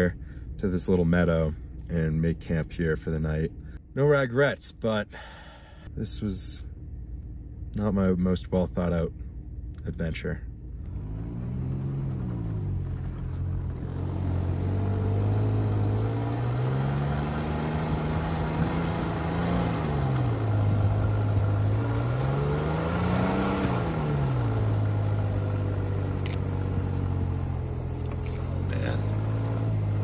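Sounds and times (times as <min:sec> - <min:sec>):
pickup truck engine revving: 0:10.8 - 0:30.0.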